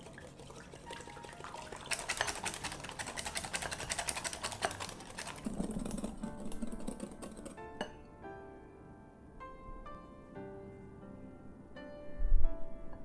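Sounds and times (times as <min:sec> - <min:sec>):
whisk clicking against glass bowl: 0:01.6 - 0:07.9.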